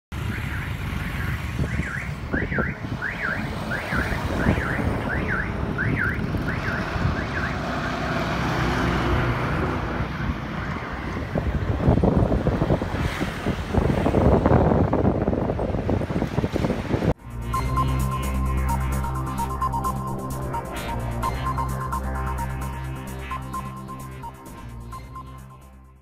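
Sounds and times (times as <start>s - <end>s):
highway traffic: 0.1s - 26.0s
electronic siren warbling: 0.2s - 7.9s, 17.2s - 26.0s
wind noise: 0.2s - 7.9s, 8.8s - 18.9s.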